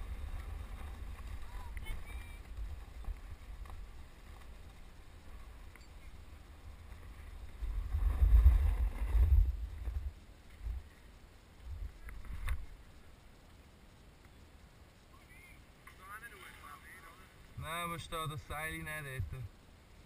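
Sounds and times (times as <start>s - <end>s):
skis scraping over snow: 0.0s - 10.7s
wind buffeting microphone: 0.0s - 10.8s.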